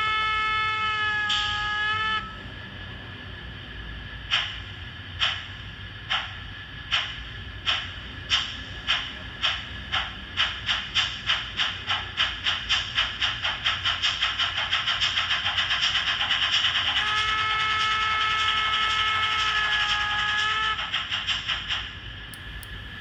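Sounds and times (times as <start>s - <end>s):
steam exhaust chuffs from speaker: 11.8s - 21.7s.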